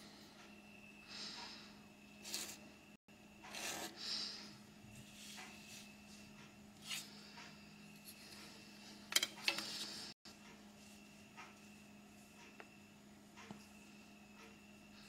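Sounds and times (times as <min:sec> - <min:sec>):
plastic rulers sliding on paper: 0:03.5 - 0:04.0.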